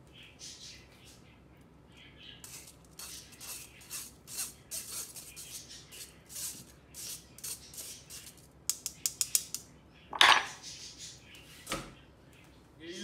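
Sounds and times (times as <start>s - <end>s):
spoon scraping metal sieve: 2.4s - 8.4s
spoon clattering on wooden board: 10.1s - 10.6s.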